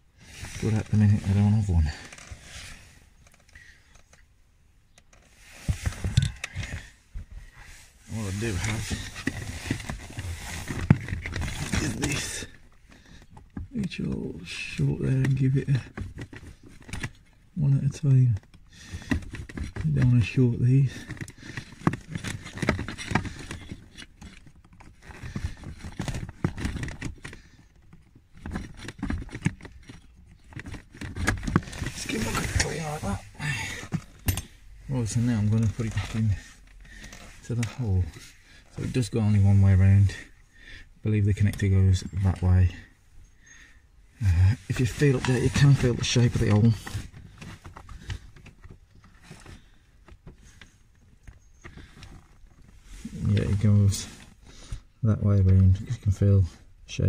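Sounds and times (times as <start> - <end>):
hands and tools handling noise: 0.1 - 56.7
hand tool scraping and clicking: 33.8 - 34.6.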